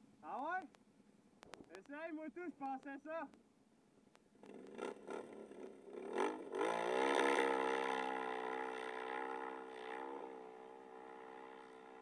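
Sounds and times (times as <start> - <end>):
quad bike engine revving: 4.4 - 12.0.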